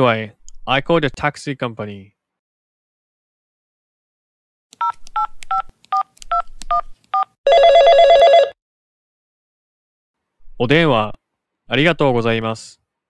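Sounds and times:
telephone ringing: 7.5s - 8.6s.

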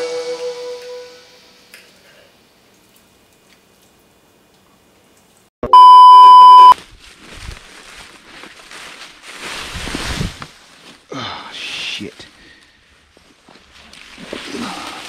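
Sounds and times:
high bleep: 5.6s - 6.8s
crunch and thud of a fall: 6.8s - 11.0s
person crashing through dry leaves: 6.8s - 11.1s.

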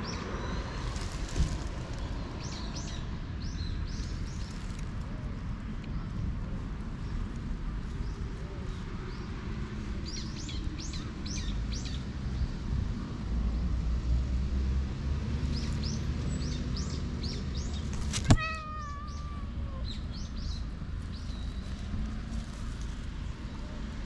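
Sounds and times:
small birds chirping: 5.9s - 12.6s, 15.4s - 23.6s
cat meowing: 18.2s - 20.0s.

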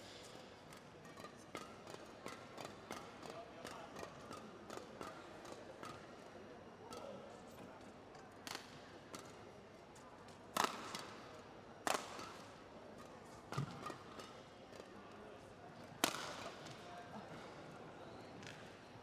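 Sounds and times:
low hall murmur: 0.0s - 19.0s
rackets hitting shuttlecock: 0.2s - 6.2s, 8.4s - 9.4s, 10.3s - 14.9s, 15.9s - 16.9s.

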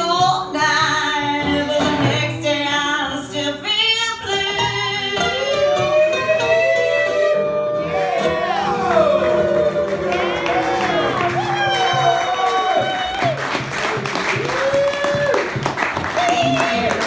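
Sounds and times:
woman singing: 0.0s - 7.5s
acoustic guitar: 0.0s - 17.0s.

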